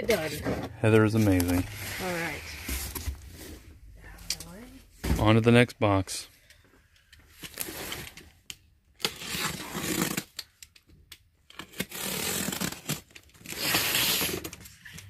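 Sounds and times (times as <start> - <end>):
box cutter slitting packing tape: 9.0 - 10.6, 11.5 - 14.9.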